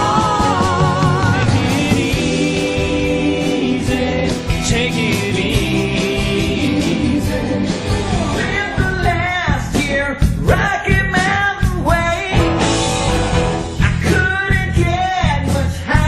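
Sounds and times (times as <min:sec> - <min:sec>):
drum beat: 0:00.0 - 0:16.0
electric guitar: 0:12.3 - 0:14.2.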